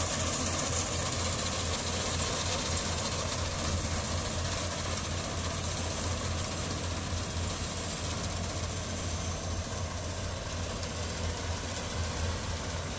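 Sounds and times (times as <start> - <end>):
diesel engine running: 0.0 - 12.9.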